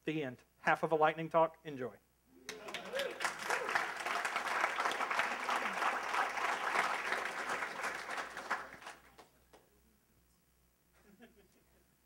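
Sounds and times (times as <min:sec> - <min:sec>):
audience applauding: 0:02.5 - 0:09.3.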